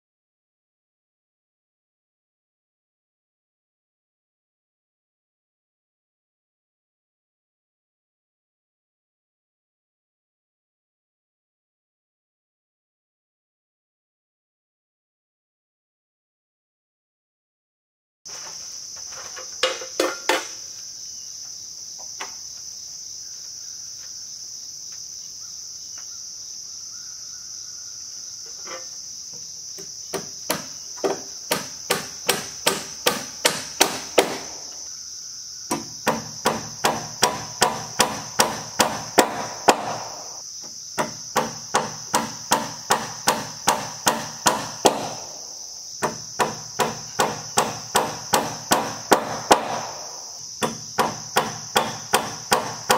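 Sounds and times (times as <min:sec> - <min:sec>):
high insect drone: 0:18.3 - 0:52.9
hammer striking nails: 0:29.8 - 0:34.8, 0:35.7 - 0:40.4, 0:41.0 - 0:45.4, 0:46.0 - 0:52.9.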